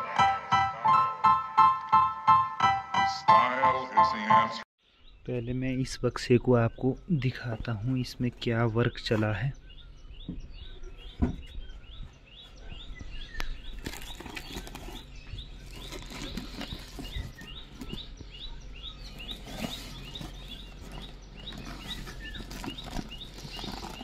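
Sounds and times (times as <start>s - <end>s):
small bird chirping: 6.6s - 24.0s
plastic sack rustling: 13.8s - 18.1s, 19.1s - 24.0s.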